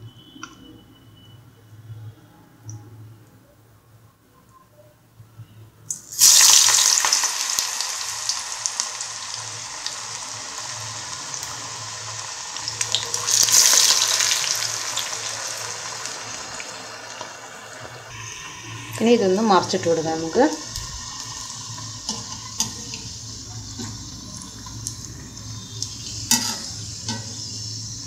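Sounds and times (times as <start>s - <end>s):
batter deep-frying in oil: 5.8s - 28.0s.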